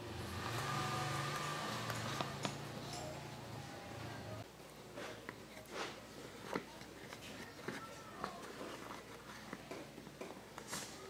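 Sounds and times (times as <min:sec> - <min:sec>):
fingers pressing dough on plastic: 0:05.2 - 0:10.9.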